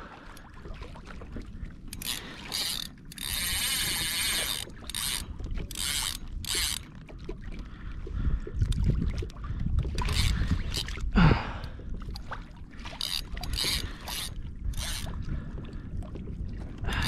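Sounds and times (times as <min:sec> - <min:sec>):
fishing reel gear whirring: 0:01.9 - 0:06.9, 0:09.9 - 0:11.0, 0:12.9 - 0:15.2.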